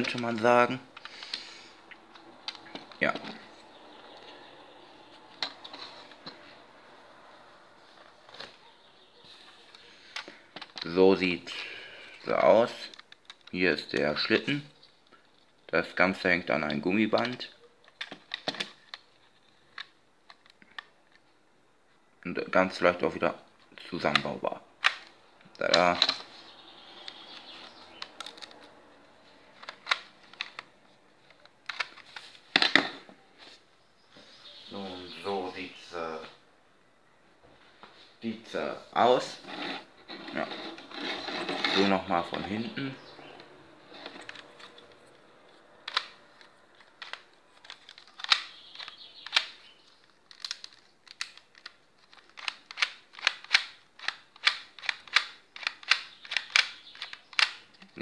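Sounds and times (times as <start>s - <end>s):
plastic toy gun clicks: 45.8s - 49.6s, 50.3s - 57.6s.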